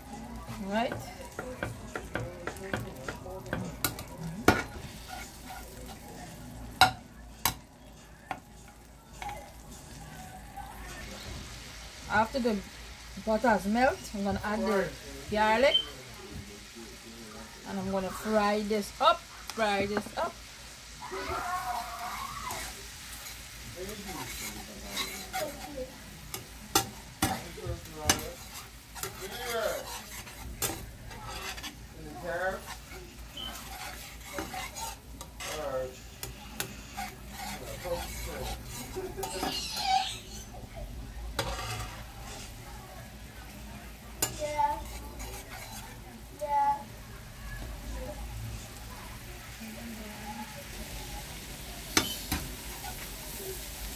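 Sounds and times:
butter sizzling in frying pan: 0:00.0 - 0:53.9
metal spatula clinking on pan: 0:52.0 - 0:52.4.

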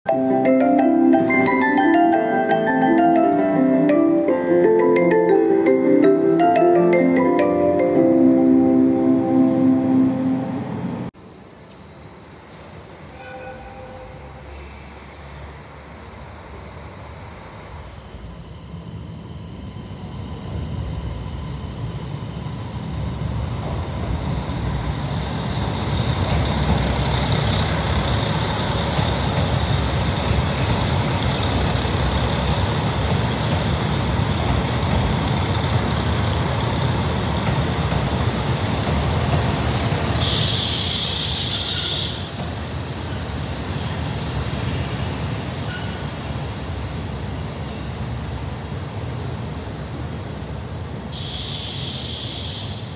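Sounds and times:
diesel train running past: 0:00.1 - 0:52.9
loud hiss: 0:40.2 - 0:42.4, 0:51.1 - 0:52.9.

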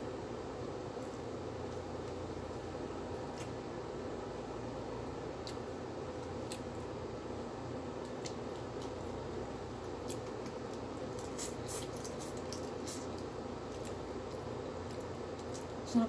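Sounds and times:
room noise hum: 0:00.0 - 0:16.0
chewing: 0:05.4 - 0:06.9, 0:08.0 - 0:15.8.

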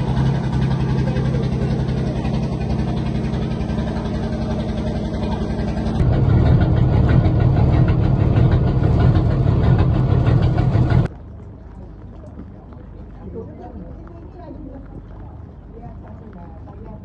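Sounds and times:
boat engine idling: 0:00.0 - 0:11.1.

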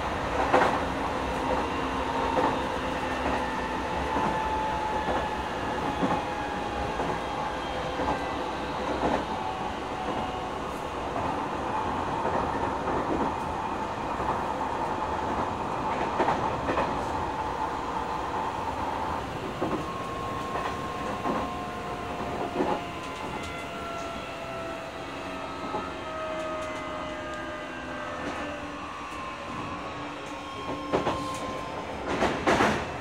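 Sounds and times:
train wheels rumbling on rail: 0:00.0 - 0:33.0
train motor whine: 0:17.4 - 0:33.0.

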